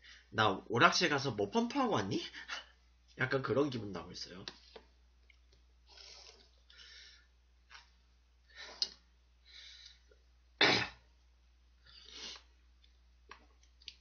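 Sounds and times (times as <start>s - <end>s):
man hissing and sniffing: 5.9s - 7.0s, 12.0s - 12.5s
sneeze-like burst: 10.6s - 11.1s.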